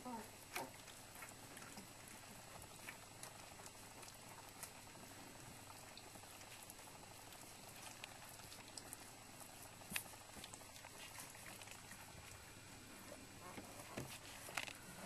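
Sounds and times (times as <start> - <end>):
steady low hiss: 0.0 - 15.0
dog licking and smacking: 5.6 - 12.5.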